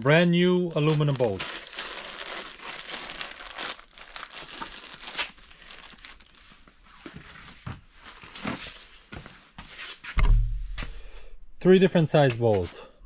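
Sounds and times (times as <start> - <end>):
plastic bag crinkling: 0.7 - 8.8.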